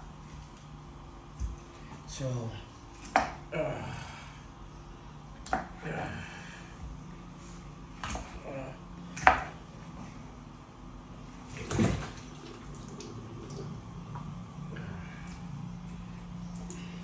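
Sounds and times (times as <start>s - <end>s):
steady low hum: 0.0s - 17.0s
water splash in sink: 11.5s - 13.8s.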